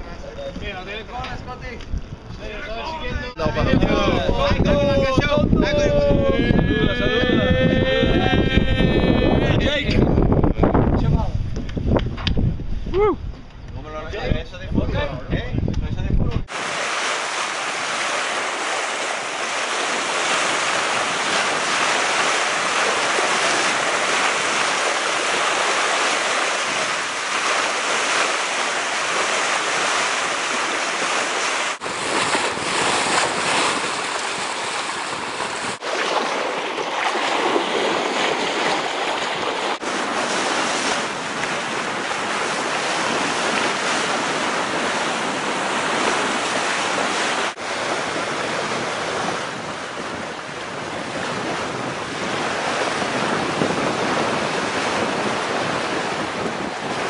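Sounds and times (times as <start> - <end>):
wind buffeting microphone: 0.0 - 57.0
sea water rushing and splashing: 16.5 - 57.0.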